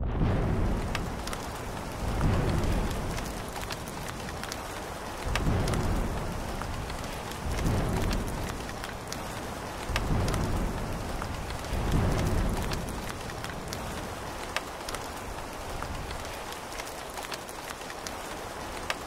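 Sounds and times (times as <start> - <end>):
low rumbles: 0.0 - 14.0
rain falling: 0.0 - 19.0.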